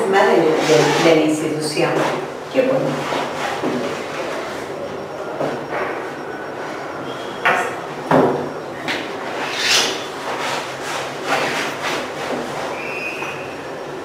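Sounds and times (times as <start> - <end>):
rubbing and scraping: 9.3 - 12.8.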